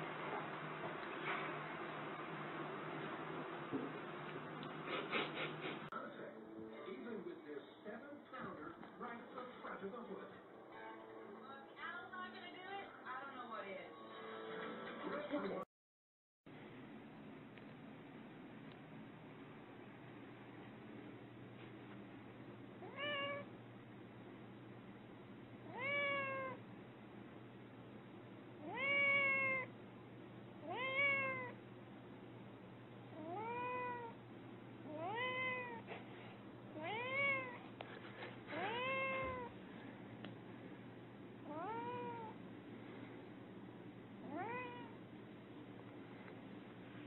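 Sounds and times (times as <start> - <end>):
cat meowing: 22.8 - 23.5, 25.6 - 26.6, 28.6 - 29.7, 30.6 - 31.6, 33.2 - 34.2, 34.9 - 35.9, 36.8 - 37.6, 38.5 - 39.6, 41.4 - 42.4, 44.2 - 45.0.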